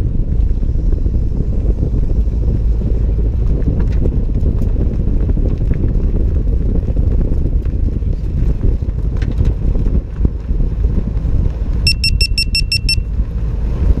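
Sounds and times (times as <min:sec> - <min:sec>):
wind buffeting microphone: 0:00.0 - 0:11.9, 0:13.0 - 0:14.0
low road rumble: 0:00.0 - 0:14.0
short electronic beeps: 0:11.9 - 0:13.1.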